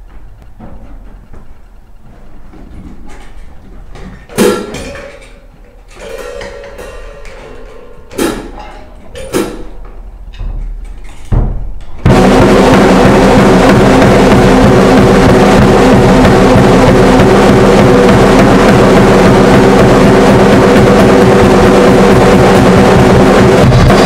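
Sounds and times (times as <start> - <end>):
drums and cymbals playing: 4.3 - 5.2, 6.0 - 10.1, 11.2 - 24.0.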